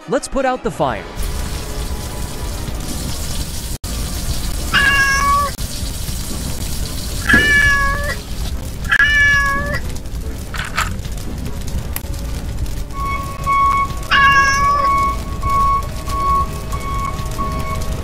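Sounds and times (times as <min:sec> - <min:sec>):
low rumble: 0:01.2 - 0:18.0
kitten meowing: 0:04.8 - 0:05.6, 0:07.3 - 0:08.2, 0:08.9 - 0:09.8, 0:14.1 - 0:15.2.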